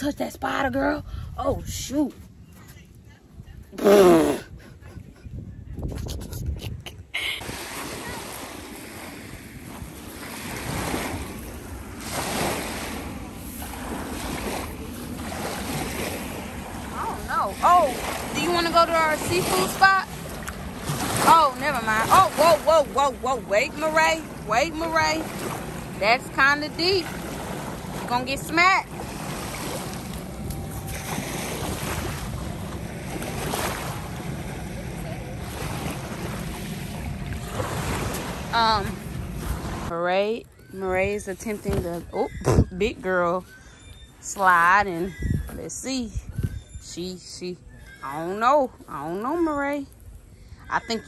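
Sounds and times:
wind rumbling on microphone: 0.0s - 51.0s
waves washing on sandy shore: 7.4s - 39.9s.

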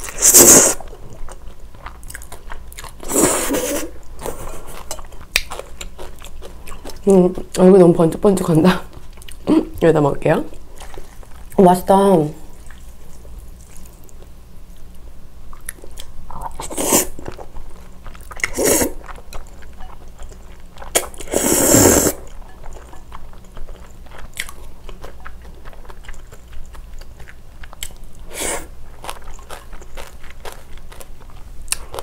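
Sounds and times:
person chewing noodles: 0.0s - 7.5s, 12.5s - 14.3s, 15.5s - 32.0s
loud slurp of noodles: 0.2s - 0.8s, 3.0s - 3.9s, 18.5s - 19.0s, 21.3s - 22.2s.

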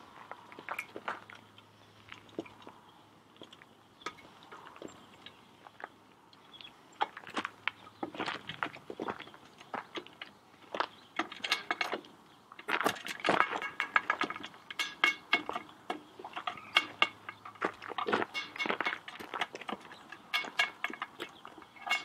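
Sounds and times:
metal bolts clinking on pot rim: 11.2s - 12.0s, 12.6s - 22.0s.

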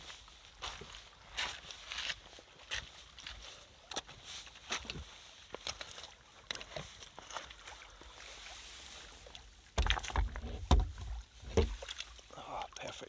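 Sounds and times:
footsteps on stony ground: 0.0s - 7.6s
water sloshing and splashing: 0.0s - 13.0s.

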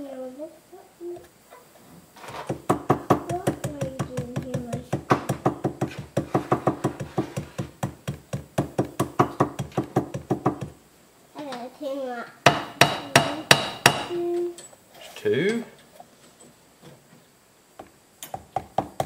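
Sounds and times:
hammer tapping on gasket: 2.5s - 10.8s, 12.5s - 14.2s.

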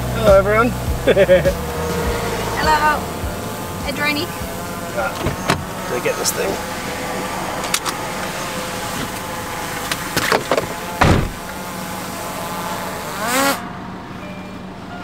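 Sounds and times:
car engine and road hum: 0.0s - 15.0s
heavy thump: 10.2s - 11.5s.

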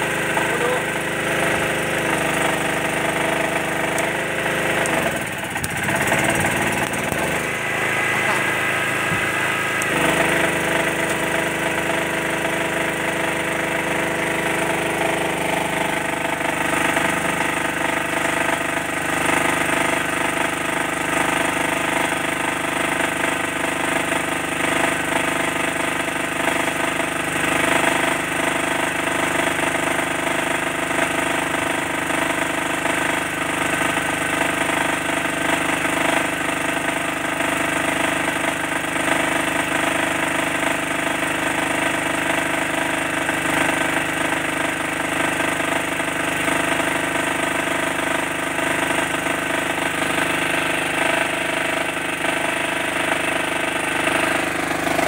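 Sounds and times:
petrol generator running: 0.0s - 55.0s.

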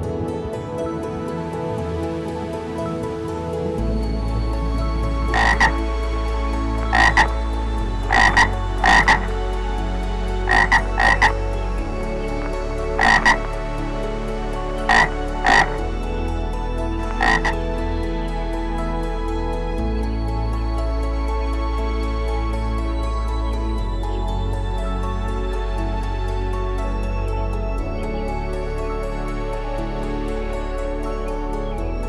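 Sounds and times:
frog croaking: 5.3s - 5.9s, 6.8s - 7.4s, 8.1s - 9.3s, 10.5s - 11.4s, 12.4s - 13.6s, 14.8s - 15.8s, 17.1s - 17.6s.

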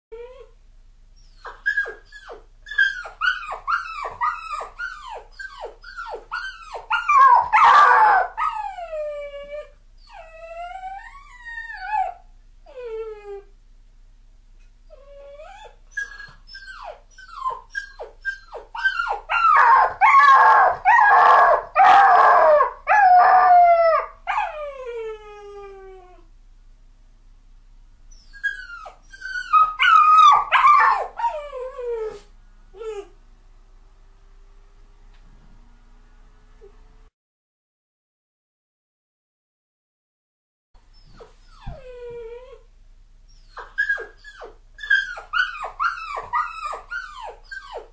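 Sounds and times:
puppy crying and howling: 1.2s - 13.5s, 14.9s - 26.3s, 28.1s - 33.2s, 43.3s - 47.9s.

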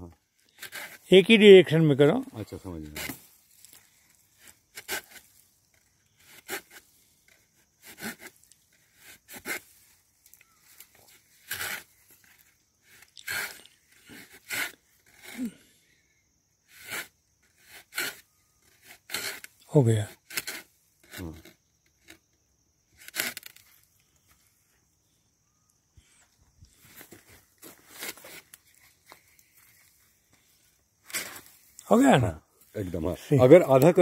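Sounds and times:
hand saw rasping through stem: 0.4s - 1.1s, 2.8s - 15.6s, 16.7s - 22.2s, 22.9s - 23.6s, 27.0s - 29.2s.

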